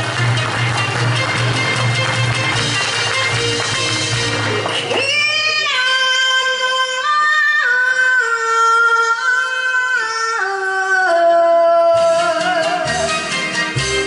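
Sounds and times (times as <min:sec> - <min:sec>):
backing music: 0:00.0 - 0:07.2, 0:10.4 - 0:14.0
woman singing ballad: 0:05.0 - 0:13.2.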